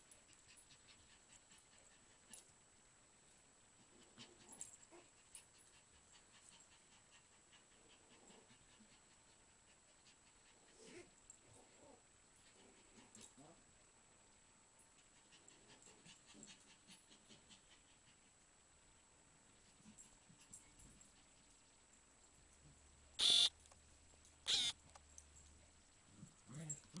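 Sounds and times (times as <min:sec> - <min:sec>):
dogs panting and scuffling: 0:19.5 - 0:22.8.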